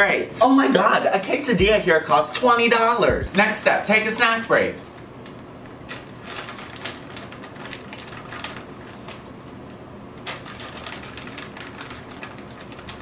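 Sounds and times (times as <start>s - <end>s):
plastic snack bag crinkling: 4.8s - 13.0s.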